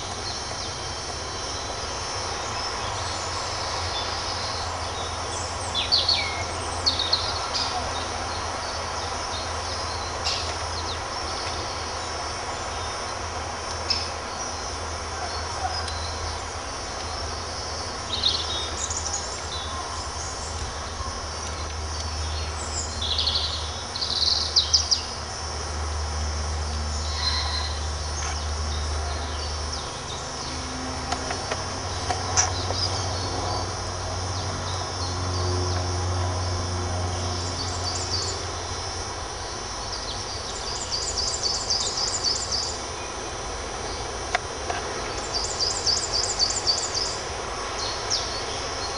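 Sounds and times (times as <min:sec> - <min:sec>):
birds singing: 0:00.0 - 0:25.5, 0:26.5 - 0:48.9
bird trill: 0:27.0 - 0:27.9.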